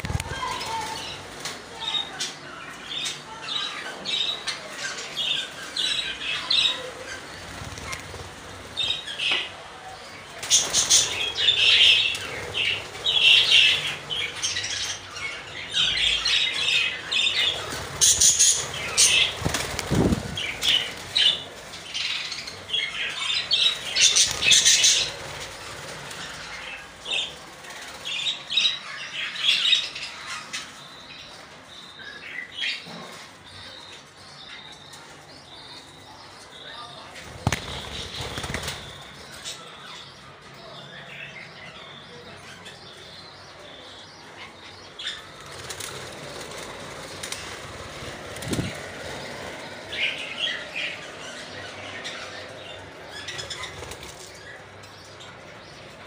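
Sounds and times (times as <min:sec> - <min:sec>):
wings flapping: 0:00.0 - 0:01.7, 0:07.0 - 0:09.5, 0:10.4 - 0:14.8, 0:17.2 - 0:28.4, 0:37.2 - 0:39.5, 0:45.1 - 0:50.4, 0:53.1 - 0:54.4.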